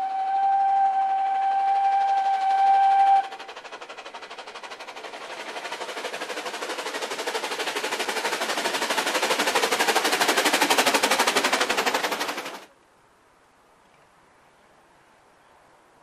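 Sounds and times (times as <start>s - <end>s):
steam locomotive chuffing: 0.0s - 12.7s.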